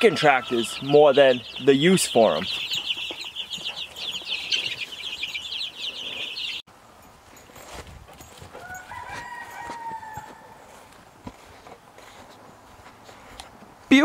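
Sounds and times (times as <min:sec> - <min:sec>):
baby chicks peeping: 0:00.0 - 0:06.6
faint rooster crow: 0:08.5 - 0:10.8.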